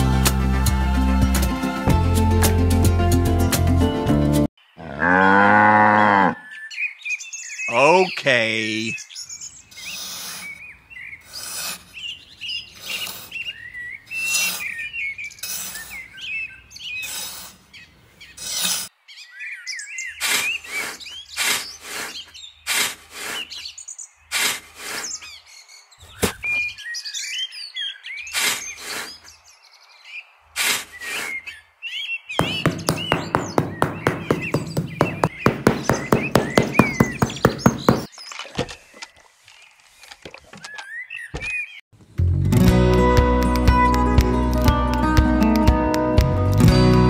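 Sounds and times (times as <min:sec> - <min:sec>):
small birds chirping: 0:06.2 - 0:41.9.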